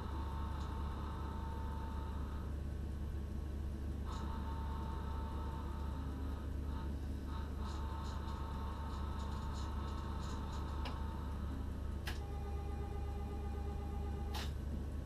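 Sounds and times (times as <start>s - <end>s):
low electrical hum: 0.0s - 15.0s
high steady whine: 3.9s - 15.0s.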